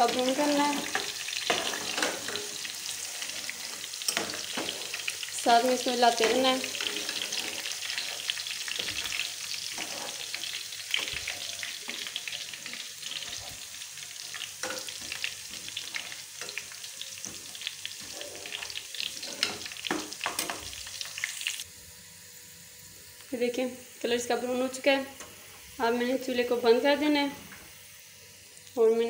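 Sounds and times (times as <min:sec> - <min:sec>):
garlic sizzling in hot oil: 0:00.0 - 0:29.0
metal spoon scraping a pan: 0:00.1 - 0:13.6, 0:14.2 - 0:21.2.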